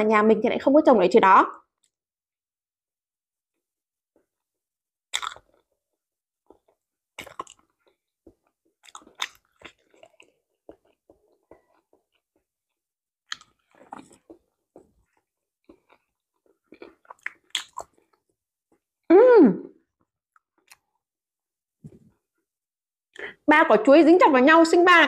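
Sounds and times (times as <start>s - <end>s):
soft chewing: 6.4s - 18.9s, 20.0s - 21.1s.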